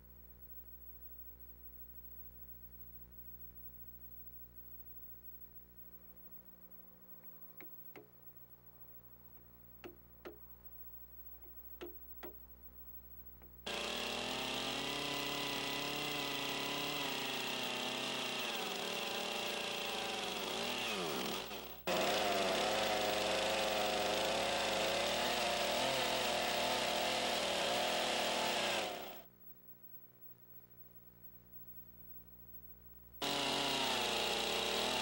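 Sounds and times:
chainsaw cutting log: 13.7s - 29.3s, 33.2s - 35.0s.

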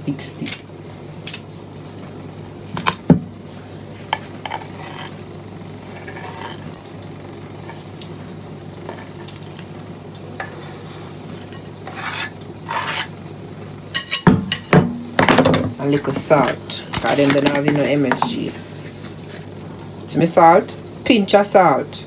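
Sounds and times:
steady low hum: 0.0s - 22.0s
knife scraping wooden board: 4.4s - 5.2s, 5.8s - 6.7s, 10.4s - 13.1s.

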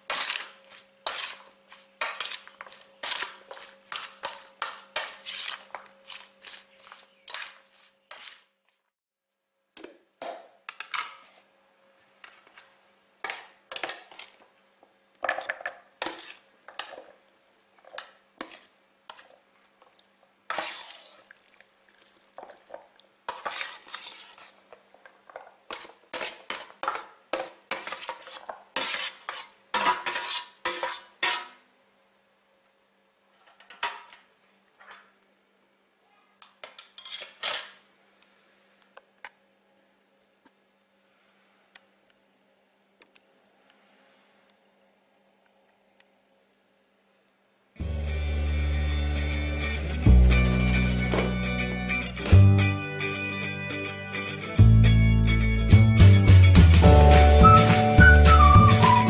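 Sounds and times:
metal spoon scraping metal tray: 0.1s - 8.5s, 20.5s - 21.2s, 23.3s - 24.6s, 25.7s - 31.6s.

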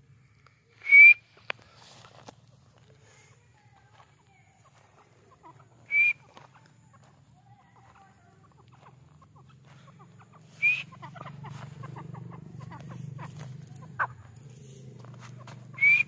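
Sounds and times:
bird call notes: 10.3s - 14.2s, 15.5s - 16.0s.

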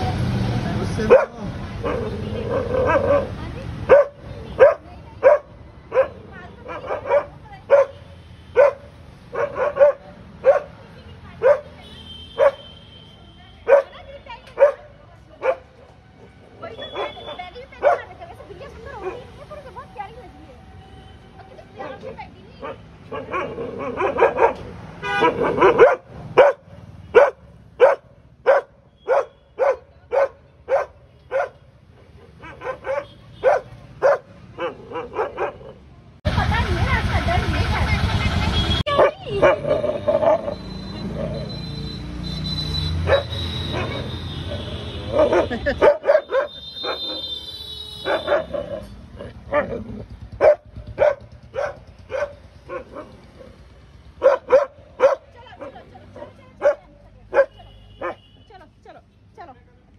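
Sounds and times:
dog barking: 1.0s - 12.8s, 13.6s - 15.8s, 16.8s - 18.2s, 19.0s - 19.3s, 21.9s - 35.8s, 38.9s - 41.3s, 43.0s - 47.3s, 48.0s - 53.6s, 54.2s - 58.3s.

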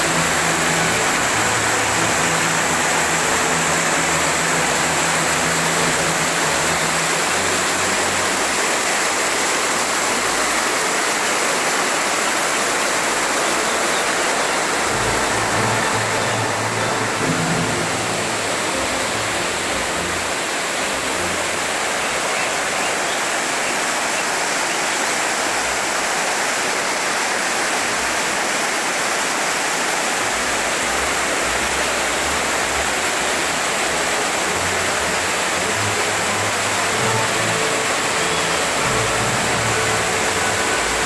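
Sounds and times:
rushing river rapids: 0.0s - 41.0s.

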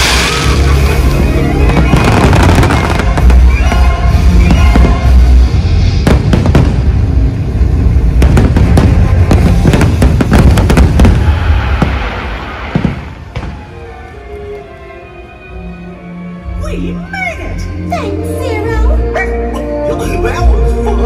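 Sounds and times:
fireworks bangs and booms: 0.0s - 13.8s
music: 0.0s - 21.0s.

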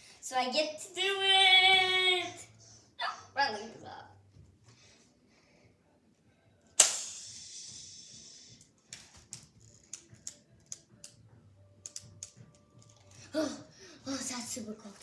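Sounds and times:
toy wand hissing swish: 6.8s - 8.7s.

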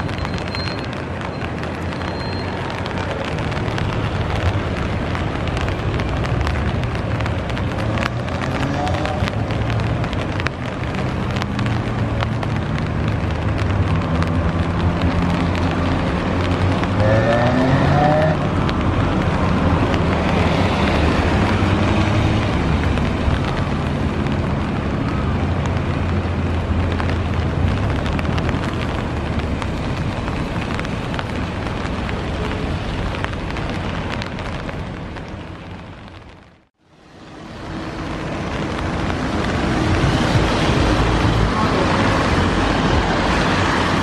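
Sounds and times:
heavy rain falling: 0.0s - 44.0s
raindrops ticking on umbrella: 0.0s - 44.0s.

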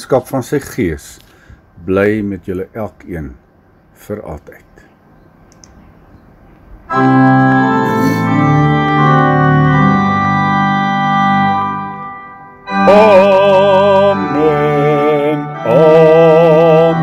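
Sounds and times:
organ playing sustained chords: 6.8s - 17.0s.

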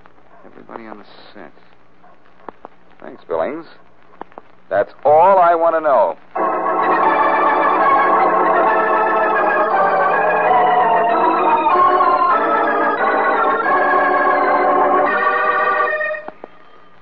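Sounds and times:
organ playing held chords: 6.3s - 17.0s.

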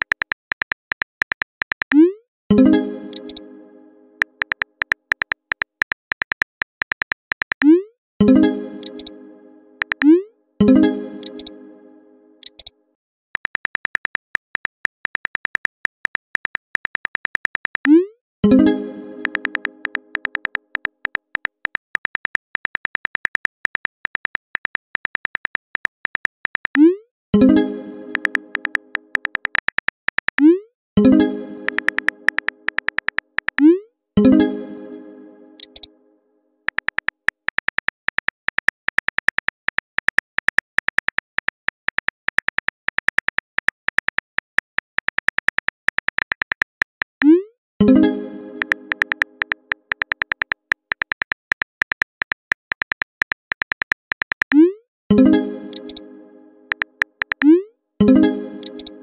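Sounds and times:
virtual keyboard typing clicks: 0.0s - 3.5s, 4.2s - 9.2s, 9.8s - 10.2s, 10.8s - 11.6s, 12.4s - 12.7s, 13.4s - 34.4s, 35.6s - 35.9s, 36.7s - 56.1s, 56.7s - 59.0s.

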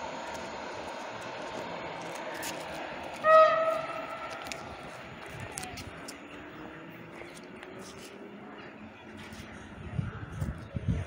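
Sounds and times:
railway traffic noise: 0.0s - 11.0s
train horn blast: 3.2s - 4.6s.

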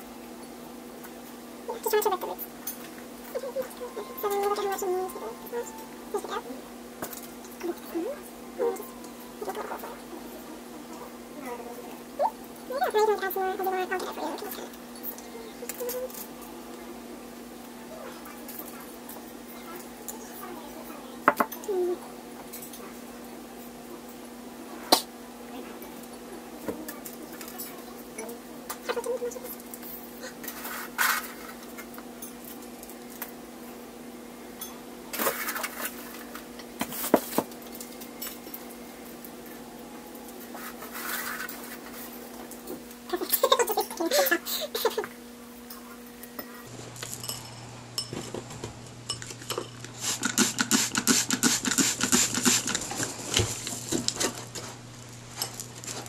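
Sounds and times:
hands scraping soil in metal tin: 40.6s - 41.9s.

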